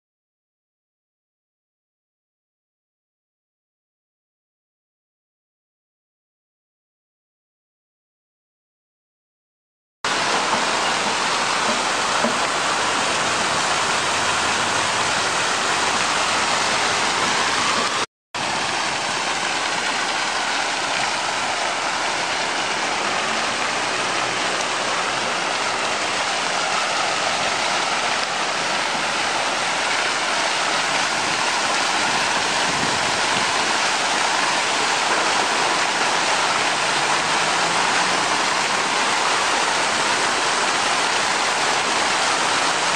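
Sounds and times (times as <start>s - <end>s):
fountain jets splashing into pool: 10.1s - 42.9s.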